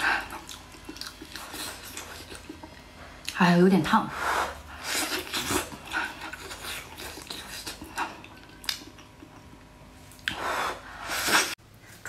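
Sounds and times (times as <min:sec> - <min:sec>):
chewing and gnawing: 0:00.0 - 0:03.4, 0:04.7 - 0:10.4.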